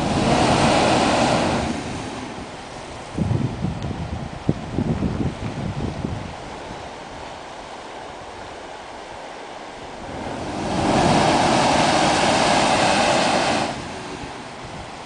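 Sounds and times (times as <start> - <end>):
blowhole rush of air and spray: 0.0 - 15.0
surf washing: 0.0 - 15.0.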